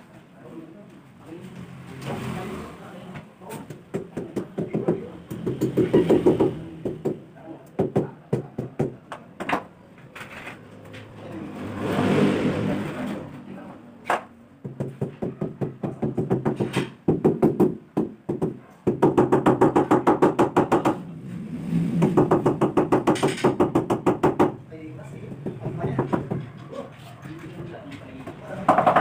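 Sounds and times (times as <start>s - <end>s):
rapid knocking: 22.0s - 24.6s.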